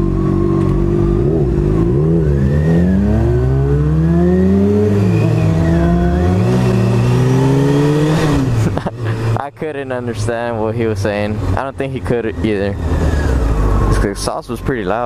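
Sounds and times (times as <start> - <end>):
motorcycle engine revving: 0.0 - 9.3.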